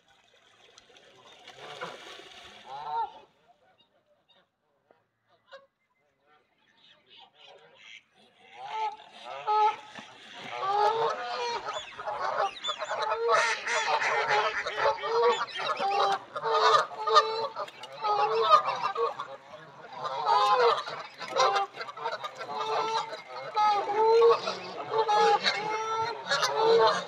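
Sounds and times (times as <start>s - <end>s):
geese honking: 7.8s - 27.0s.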